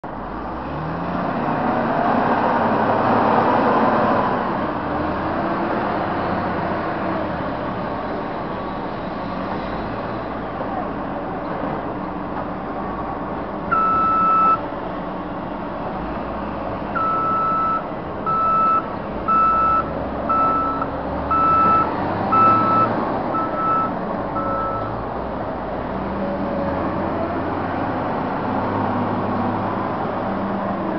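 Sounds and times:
diesel engines running: 0.0s - 30.9s
backup alarm beeping: 13.7s - 14.6s, 17.0s - 24.9s.

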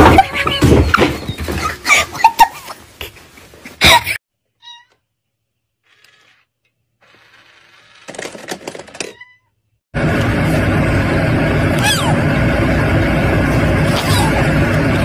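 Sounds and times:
toy mechanical whirr with clicks: 5.9s - 9.2s.

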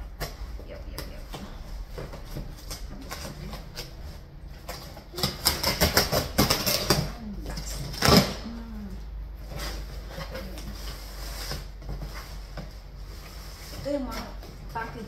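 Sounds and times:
scissors cutting packing tape: 4.6s - 8.5s
cardboard flaps tearing open: 7.7s - 8.6s.

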